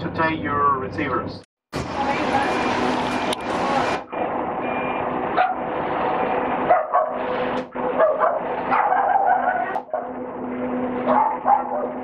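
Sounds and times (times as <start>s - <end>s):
dog barking: 5.4s - 5.6s, 6.7s - 7.3s, 8.0s - 10.2s, 11.0s - 12.0s.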